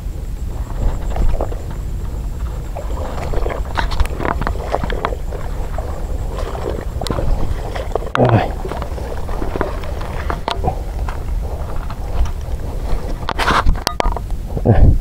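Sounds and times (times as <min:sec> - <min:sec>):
wind rumble on microphone: 0:00.0 - 0:15.0
splashy rustles: 0:00.4 - 0:13.9.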